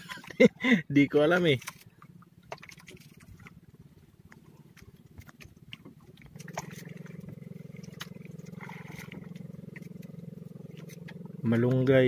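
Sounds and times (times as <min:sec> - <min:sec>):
small engine running: 0:06.2 - 0:12.0.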